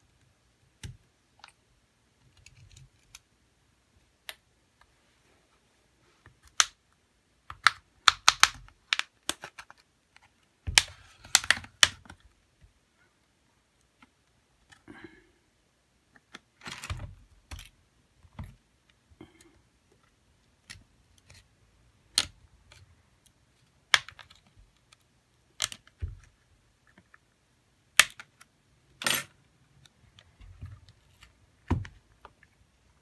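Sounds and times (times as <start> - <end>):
plastic clips clicking and snapping: 7.4 - 12.2, 22.1 - 26.3, 27.9 - 29.2.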